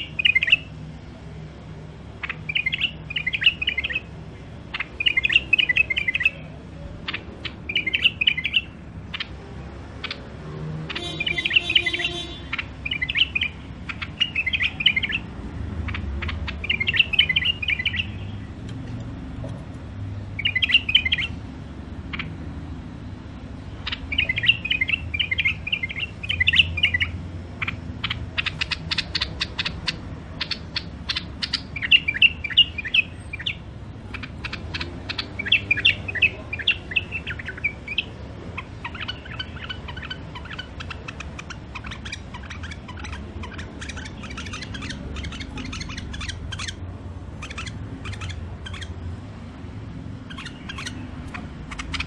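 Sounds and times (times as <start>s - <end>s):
bulbul warbling song: 2.2s - 9.4s, 10.9s - 15.3s, 15.9s - 18.5s, 20.4s - 21.4s, 23.8s - 49.2s.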